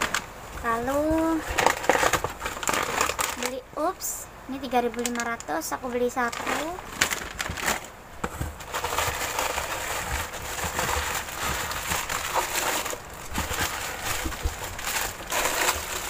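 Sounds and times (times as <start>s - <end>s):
plastic packaging crinkling: 0.0s - 3.6s, 4.6s - 16.0s
cardboard box shifting: 6.3s - 16.0s.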